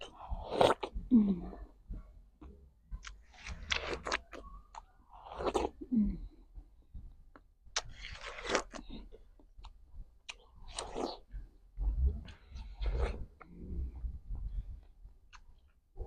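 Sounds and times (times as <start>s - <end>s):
wet crunching bites of watermelon: 3.0s - 5.8s, 7.7s - 11.2s.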